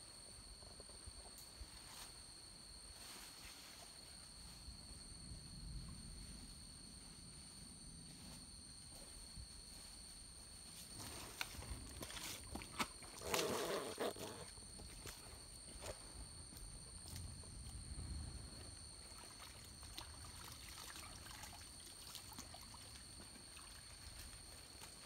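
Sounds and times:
water trickling: 19.0 - 24.2.

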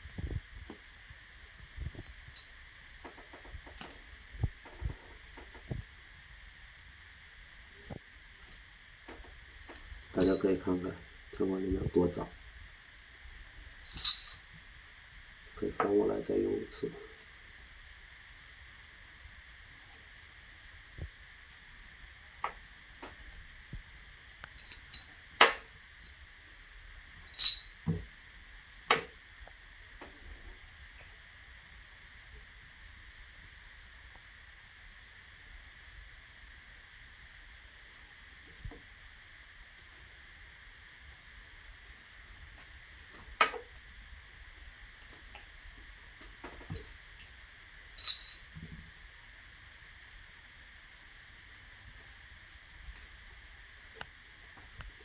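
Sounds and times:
metal rod and barrel clinking: 13.9 - 14.4, 27.3 - 27.7.

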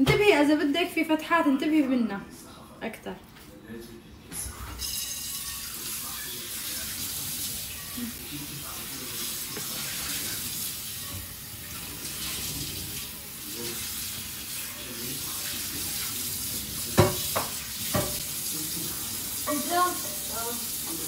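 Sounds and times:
running tap water hiss: 4.8 - 21.0.

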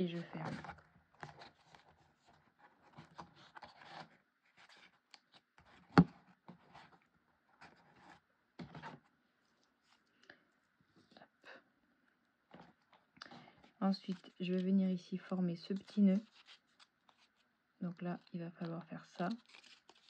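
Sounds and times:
stiff paper rustling: 13.4 - 17.5, 18.2 - 20.0.

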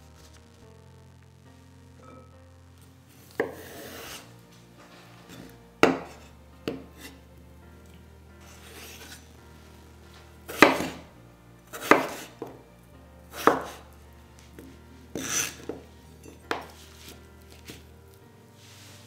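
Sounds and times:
knife chopping potatoes on wooden board: 3.3 - 4.2, 5.4 - 7.1, 10.5 - 11.0, 11.8 - 12.6, 13.3 - 13.8, 14.6 - 15.8.

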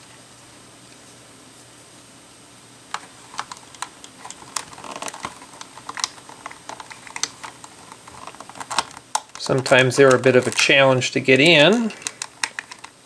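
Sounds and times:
plastic bricks clicking: 2.9 - 13.0.

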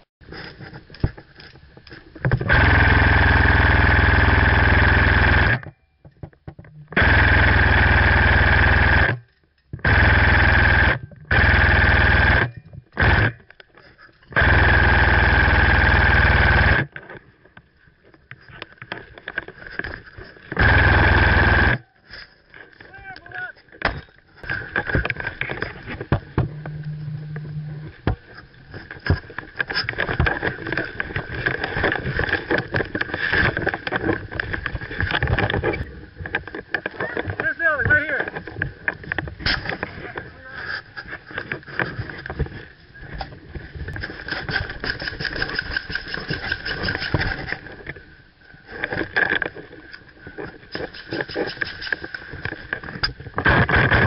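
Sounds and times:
airsoft rifle full-auto bursts: 2.5 - 5.6, 7.0 - 9.1, 9.8 - 13.4, 14.4 - 16.9, 20.6 - 21.8.

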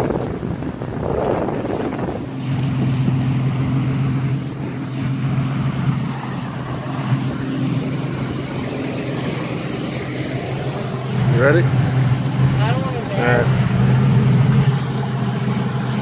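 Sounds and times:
outboard engine drone: 0.0 - 16.0
water rushing past hull: 0.0 - 16.0
wind on microphone: 0.0 - 16.0.

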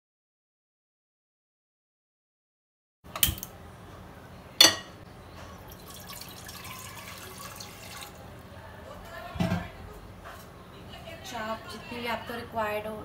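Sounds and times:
cookware clinking on stove: 4.6 - 5.0
water pouring into pot: 5.7 - 8.4.

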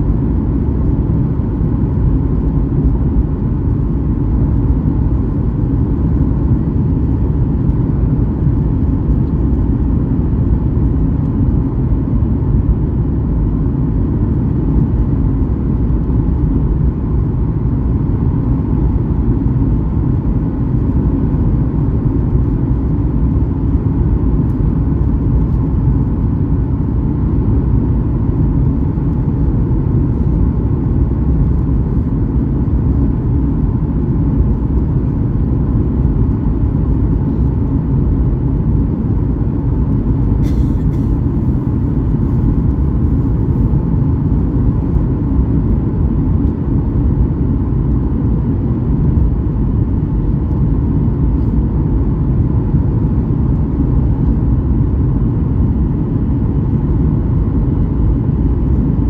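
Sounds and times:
jet engine rumble: 0.0 - 59.0
airflow noise: 28.6 - 46.0.

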